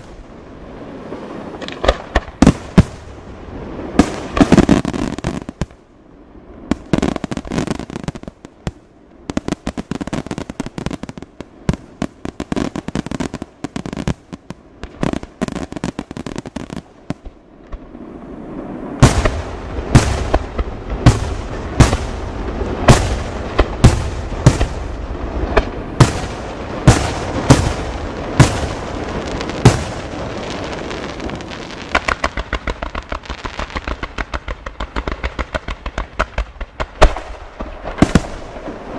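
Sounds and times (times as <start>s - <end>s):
fireworks crackling: 0.0s - 38.9s.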